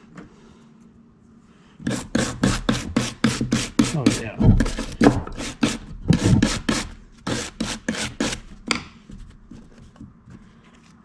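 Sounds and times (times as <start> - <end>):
wire brush scrubbing metal: 1.8 - 8.7.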